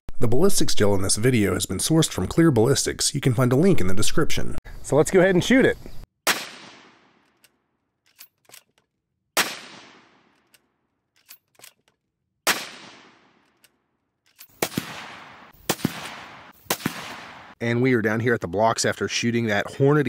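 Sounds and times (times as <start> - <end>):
rifle shots with echo: 6.2 - 7.2, 9.4 - 10.4, 12.4 - 13.5, 14.5 - 17.6
rifle bolt clicks: 7.2 - 8.9, 10.3 - 12.0, 13.4 - 14.6
rapid sharp cracks: 12.5 - 17.6.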